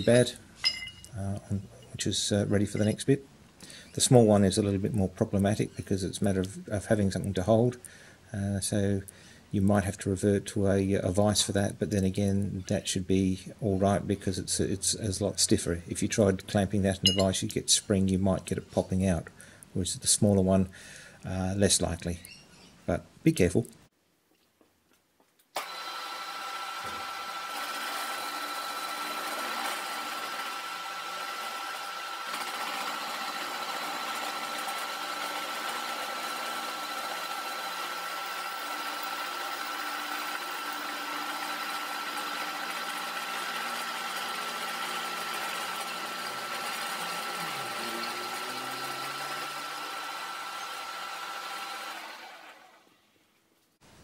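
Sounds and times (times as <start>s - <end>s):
milling machine whine: 25.6s - 52.8s.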